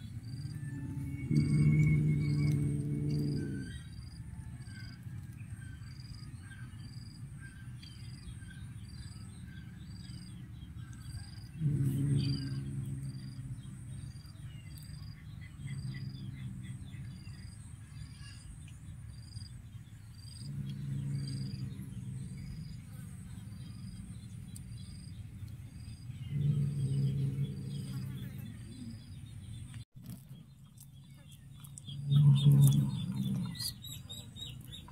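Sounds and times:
low pitched tone: 0:00.0 - 0:04.5, 0:11.5 - 0:17.6, 0:20.4 - 0:29.4
low repeating insect note: 0:00.0 - 0:29.6, 0:31.8 - 0:34.6
insects chirping: 0:00.0 - 0:29.8.

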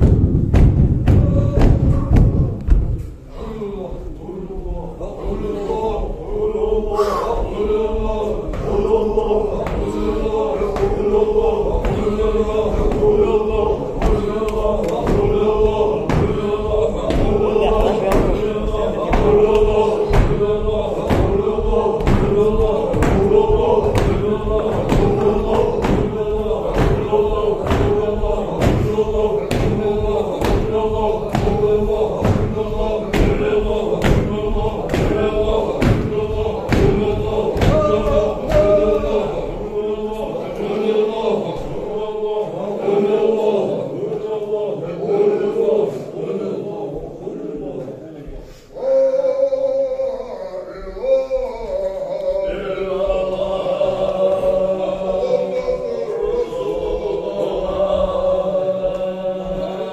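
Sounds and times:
sharp rhythmic beat: 0:00.0 - 0:03.1, 0:05.2 - 0:42.4
group chanting in unison: 0:00.0 - 0:59.9.

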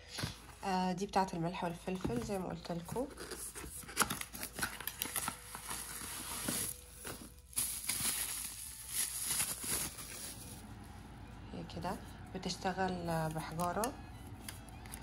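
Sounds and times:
packaging rustling and crinkling: 0:02.0 - 0:10.6.

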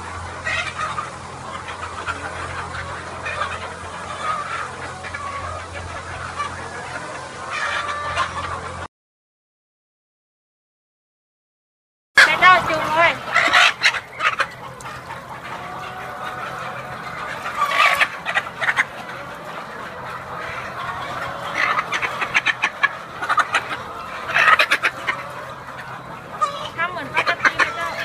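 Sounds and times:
hen squawking and clucking: 0:00.0 - 0:08.9, 0:12.2 - 0:28.0.

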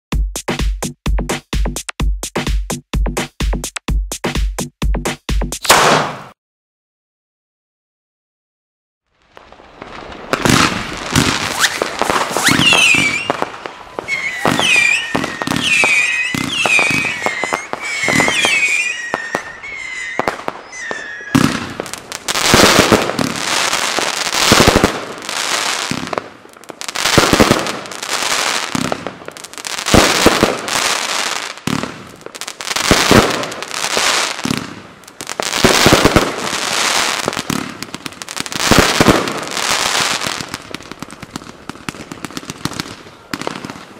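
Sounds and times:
firework crackling bursts: 0:05.6 - 0:06.4, 0:09.1 - 0:43.9
firework launch pops: 0:05.6 - 0:06.4, 0:09.4 - 0:23.4, 0:28.7 - 0:29.2
firework launch thumps: 0:05.6 - 0:06.4, 0:10.3 - 0:18.6, 0:21.3 - 0:21.9
firework whistles: 0:09.4 - 0:26.1, 0:35.5 - 0:37.9.

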